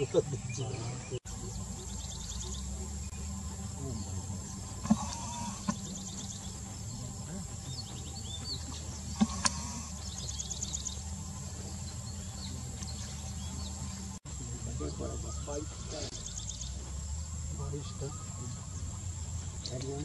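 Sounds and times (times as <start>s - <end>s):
birds chirping in trills: 0.0s - 20.0s
low hum: 0.0s - 20.0s
steady insect hiss: 0.0s - 20.0s.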